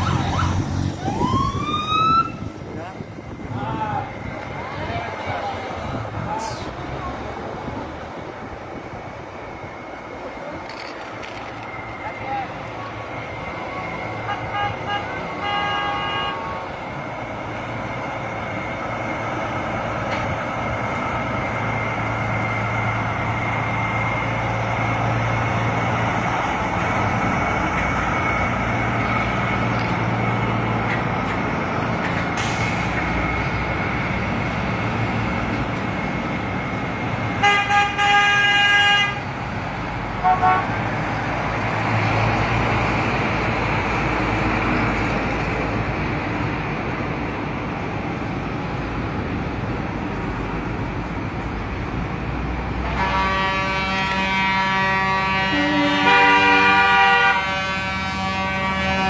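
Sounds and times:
trucks driving past: 0.0 - 59.0
tyre and road noise: 0.0 - 59.0
vehicle horn blasts: 14.2 - 16.6, 37.4 - 39.2, 40.2 - 40.8, 52.8 - 59.0.

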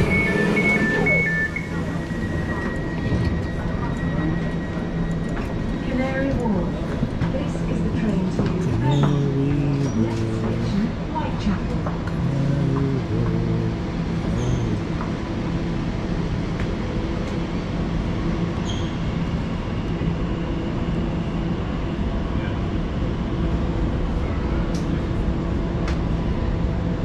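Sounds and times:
electric train running: 11.8 - 17.4.

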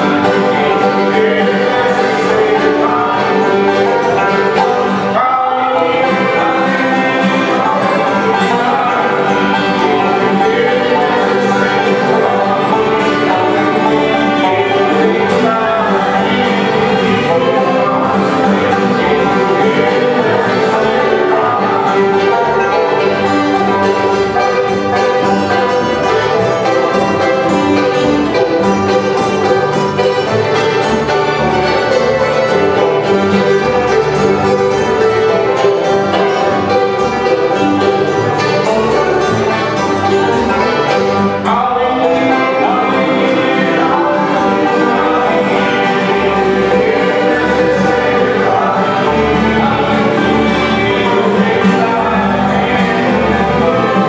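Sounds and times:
bluegrass gospel band playing: 0.0 - 54.0.

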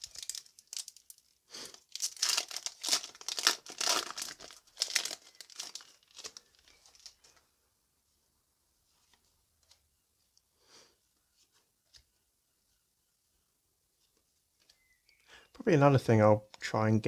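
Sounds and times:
foil wrapper tearing and crinkling: 0.0 - 7.2.

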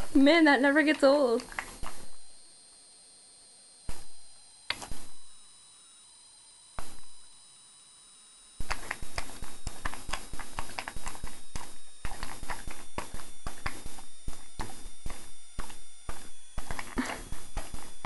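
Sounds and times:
dog smacking its lips: 1.4 - 2.0, 8.6 - 13.9.

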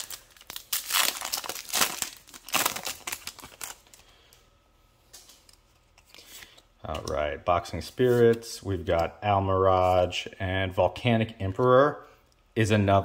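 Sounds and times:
foil wrapper crinkling and tearing: 0.0 - 4.1.

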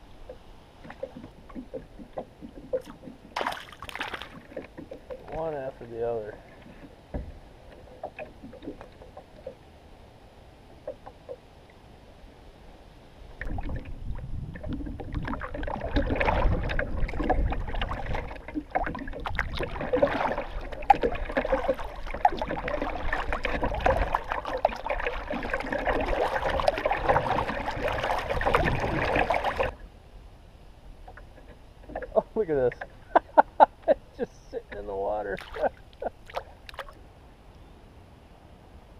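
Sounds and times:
kayak paddle splashing water: 0.2 - 9.6, 13.3 - 29.8, 35.3 - 37.0.

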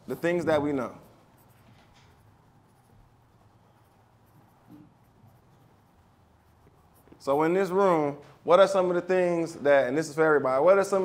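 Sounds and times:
marker strokes on paper: 0.0 - 8.0.

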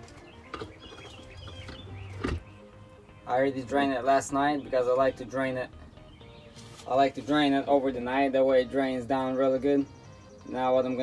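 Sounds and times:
high wavering bird calls: 0.0 - 3.1, 8.9 - 11.0
birds chirping: 0.0 - 11.0.

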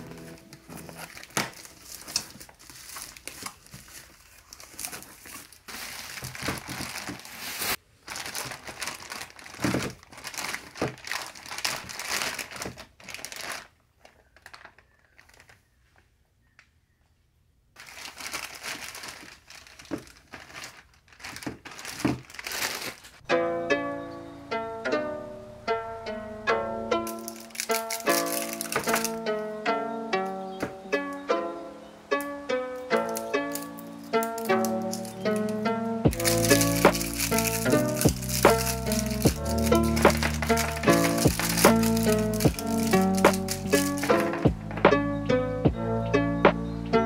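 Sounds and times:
packaging crinkling and rustling: 0.0 - 16.1, 17.8 - 23.3, 27.1 - 29.3, 32.9 - 44.8.

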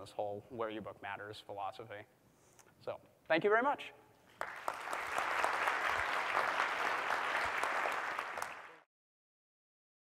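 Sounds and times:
audience applauding: 4.3 - 8.9.

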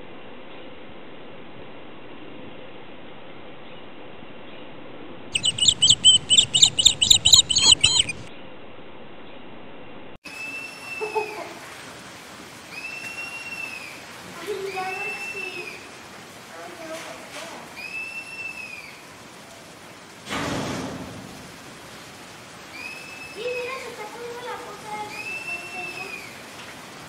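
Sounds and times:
high chirps: 5.3 - 8.3
high whistled calls: 5.3 - 8.3, 10.3 - 11.4, 12.7 - 16.0, 17.8 - 19.1, 22.7 - 23.9, 24.9 - 26.4.

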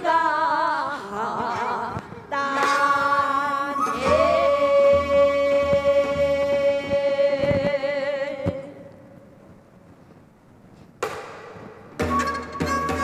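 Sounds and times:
women singing folk song: 0.0 - 9.0.

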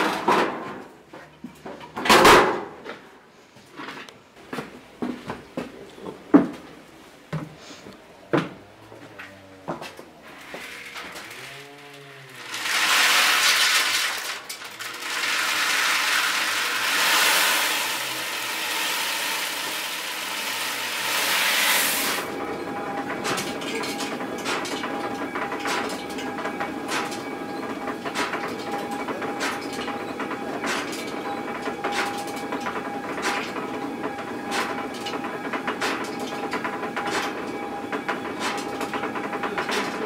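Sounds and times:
grain pouring into hopper: 12.3 - 22.4
stone grain mill rattling: 12.4 - 40.0
mill clapper knocking: 22.2 - 40.0.

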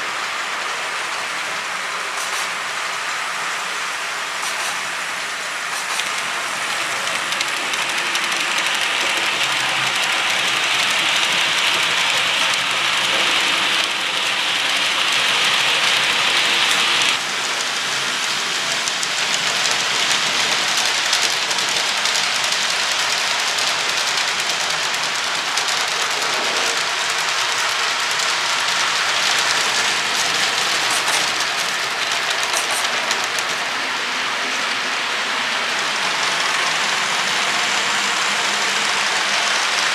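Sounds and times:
model train wheels rolling: 0.0 - 39.9
electric motor: 5.8 - 39.9.

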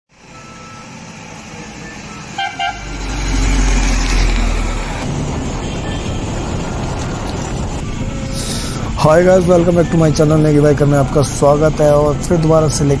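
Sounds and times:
bus engine rumbling past: 0.1 - 12.2
bus horn toots: 2.2 - 3.2.

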